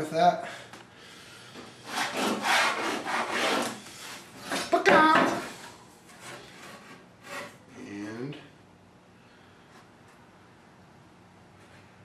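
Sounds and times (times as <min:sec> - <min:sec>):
steel straightedge scraping plywood: 0:01.9 - 0:03.8, 0:06.2 - 0:07.6.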